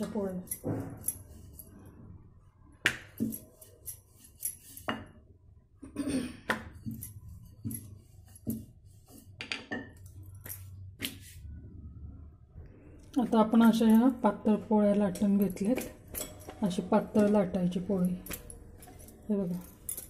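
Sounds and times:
rolling pin rolling dough: 2.8 - 5.3, 6.4 - 11.4.

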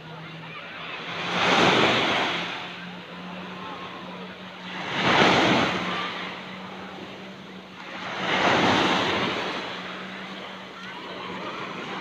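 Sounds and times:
small waves breaking on shore: 0.0 - 12.0.

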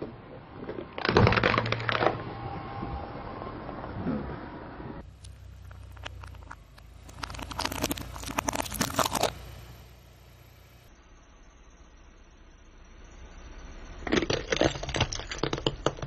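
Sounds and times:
shell cracking under car tyre: 0.0 - 2.3, 5.1 - 9.6, 14.0 - 16.0.

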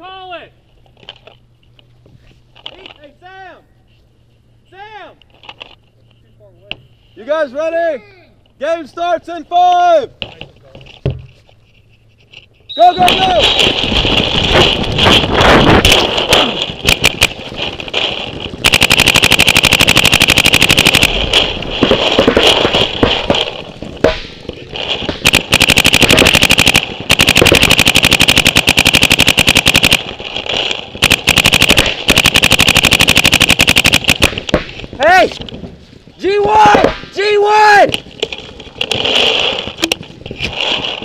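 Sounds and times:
paintball marker firing bursts: 13.0 - 17.9, 18.6 - 34.9.

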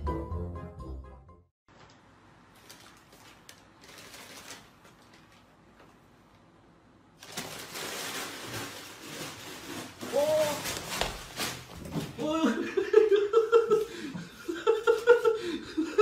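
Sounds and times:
paper bag rustling and crinkling: 2.5 - 6.0, 7.2 - 12.2.

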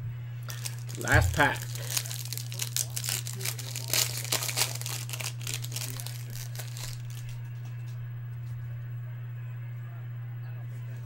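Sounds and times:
low steady hum: 0.0 - 11.0
foil wrapper tearing and crinkling: 0.5 - 7.7.

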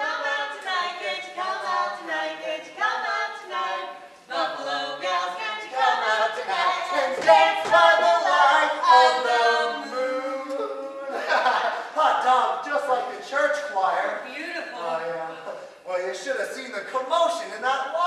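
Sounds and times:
choir singing unaccompanied: 0.0 - 11.7.

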